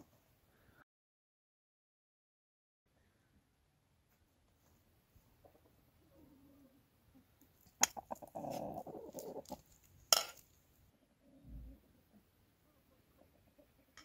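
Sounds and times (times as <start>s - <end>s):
chickens pecking clicks: 7.4s - 9.8s
chickens clucking: 7.6s - 9.8s, 11.8s - 14.0s.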